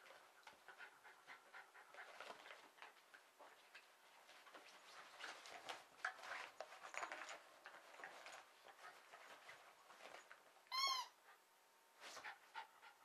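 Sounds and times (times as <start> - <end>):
squeaky toy squeak: 10.7 - 11.2.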